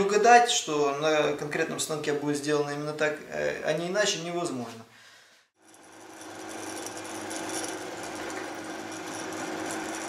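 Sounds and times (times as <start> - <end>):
drill cutting into metal: 5.6 - 10.0
drill press motor hum: 5.6 - 10.0.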